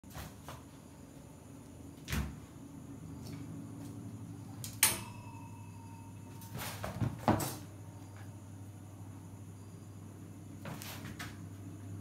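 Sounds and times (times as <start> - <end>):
sharp metallic knock: 4.8 - 6.1.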